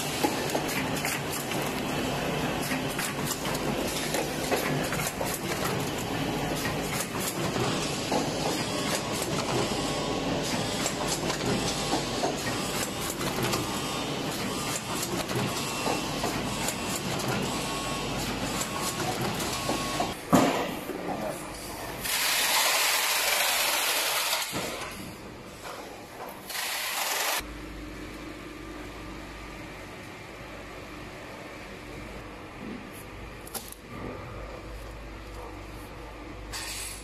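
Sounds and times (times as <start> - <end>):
packing machine running: 0.0 - 20.2, 21.9 - 25.0, 26.4 - 27.5.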